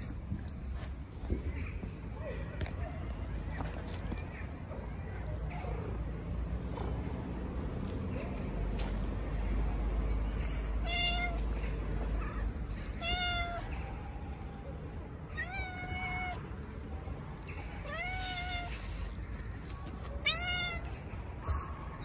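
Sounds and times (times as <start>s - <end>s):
cat meowing: 10.4s - 11.4s, 12.2s - 13.8s, 15.3s - 16.5s, 17.8s - 19.2s, 20.2s - 21.8s.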